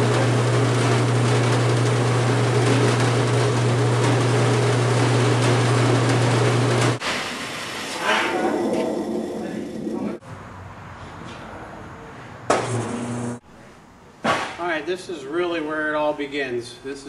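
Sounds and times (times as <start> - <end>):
roll former machine humming: 0.0 - 10.2.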